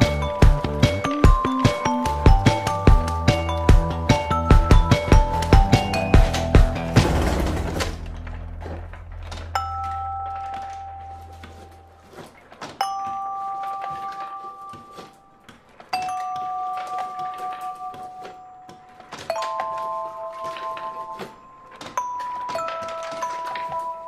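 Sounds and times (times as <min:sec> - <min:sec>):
vibraphone chords ringing: 0:00.0 - 0:07.0, 0:09.3 - 0:11.9
low hum: 0:06.7 - 0:12.1.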